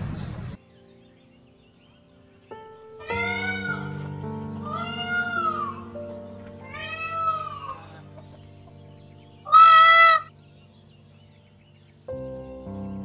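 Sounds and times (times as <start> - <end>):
peacock calling: 3.0 - 8.4, 9.4 - 10.3.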